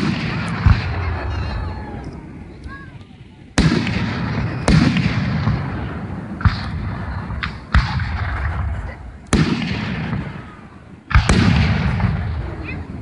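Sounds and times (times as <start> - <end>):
firework booms with echo: 0.0 - 2.4, 3.5 - 13.0
thin firework crack: 3.5 - 12.3.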